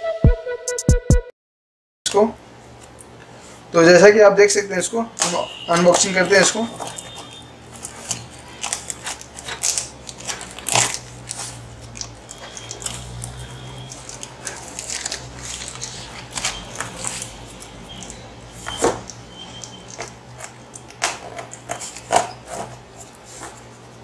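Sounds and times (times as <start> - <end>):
cardboard box tearing and crackling: 6.4 - 17.4.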